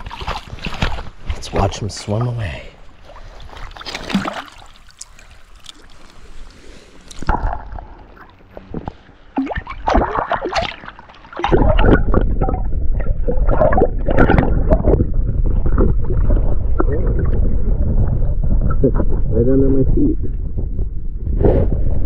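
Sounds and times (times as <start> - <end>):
water sloshing and splashing: 0.0 - 17.5
muffled underwater gurgling: 7.2 - 22.0.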